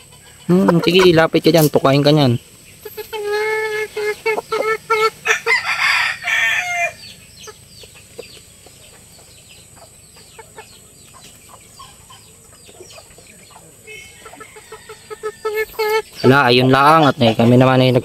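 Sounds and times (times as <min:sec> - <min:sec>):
rooster crowing: 0:05.0 - 0:07.2, 0:13.8 - 0:16.0.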